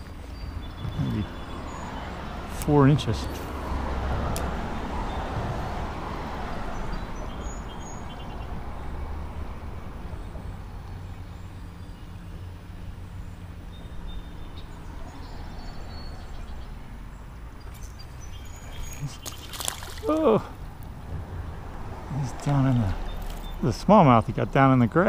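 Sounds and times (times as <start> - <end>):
road traffic rumbling overhead: 0.0 - 25.0.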